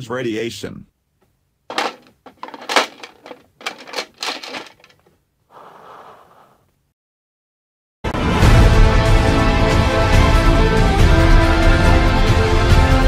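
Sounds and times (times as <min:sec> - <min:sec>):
plastic pieces clacking: 0:01.7 - 0:05.1
soft rustle: 0:01.7 - 0:06.8.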